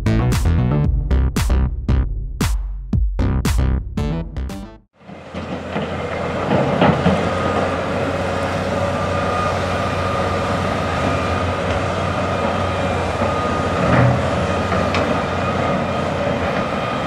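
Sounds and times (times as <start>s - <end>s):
diesel engines running: 5.0s - 17.0s.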